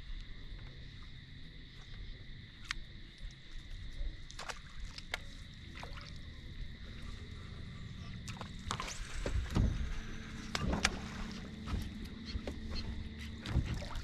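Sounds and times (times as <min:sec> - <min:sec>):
low rumble: 0:06.1 - 0:14.0.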